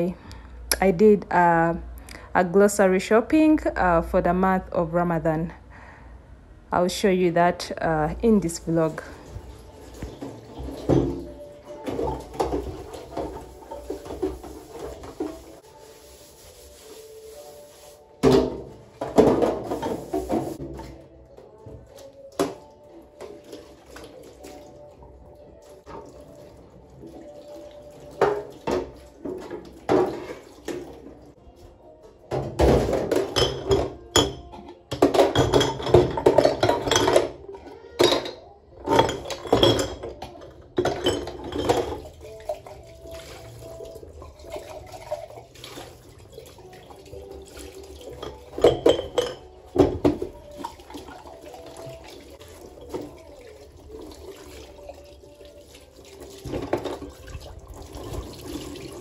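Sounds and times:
tap water running into sink: 0:09.4 - 0:15.6, 0:25.8 - 0:31.2
glass and metal clinking: 0:33.1 - 0:37.4, 0:38.0 - 0:42.0, 0:48.2 - 0:49.6.

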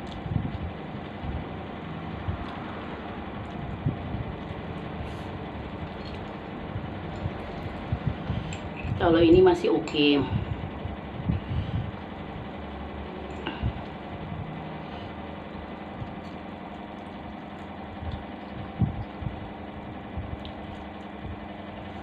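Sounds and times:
fan hum: 0:00.0 - 0:22.0
person chewing: 0:03.3 - 0:07.8.

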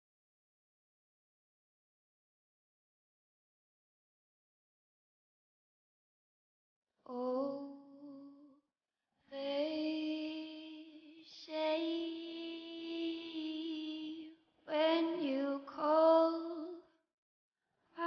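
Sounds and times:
high voice singing unaccompanied: 0:09.4 - 0:16.8.

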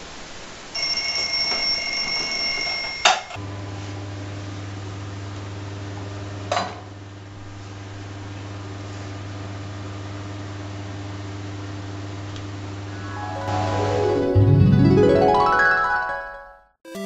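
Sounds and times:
alarm clock electronic tone: 0:00.8 - 0:03.2.

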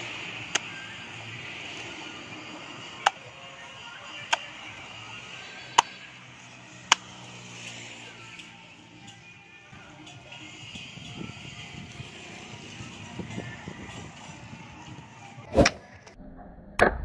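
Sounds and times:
background music: 0:00.0 - 0:15.8
cleaver chopping coconut husk: 0:05.7 - 0:06.0, 0:06.8 - 0:07.6.

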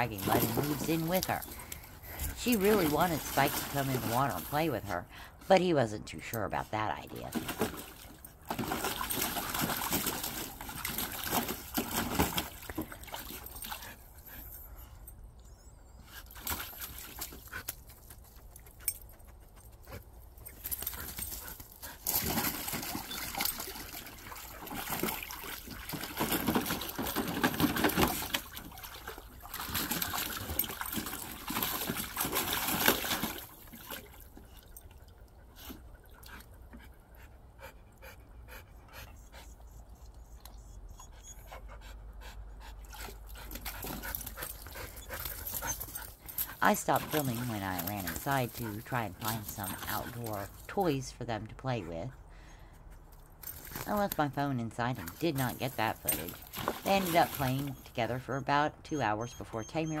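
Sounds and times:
dog splashing in water: 0:02.4 - 0:04.6, 0:07.3 - 0:14.1, 0:16.3 - 0:18.3, 0:20.5 - 0:34.6, 0:55.0 - 0:57.8.

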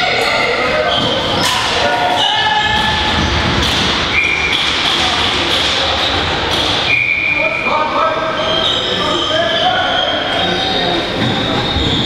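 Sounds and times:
knocks and shuffle of play: 0:00.0 - 0:06.9
people shouting in a hall: 0:00.0 - 0:12.0.

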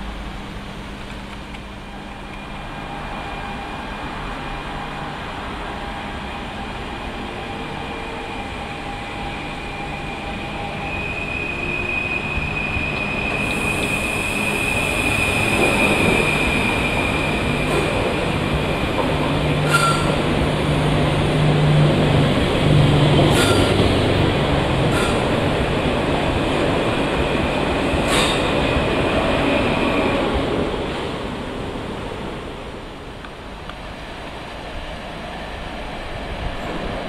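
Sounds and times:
train pulling into station: 0:00.0 - 0:37.0
high-pitched train squeal: 0:01.9 - 0:20.6, 0:23.2 - 0:24.0, 0:24.9 - 0:25.3, 0:27.9 - 0:30.4.

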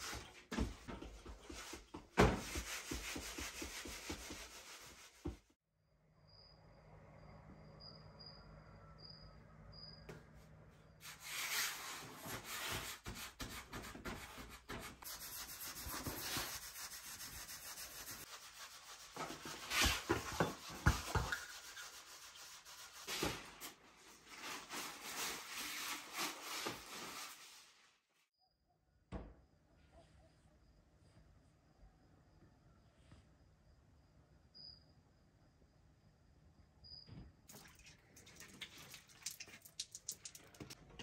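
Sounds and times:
hands patting bread dough: 0:00.1 - 0:05.5
plastic sheeting rustling: 0:23.0 - 0:28.0.

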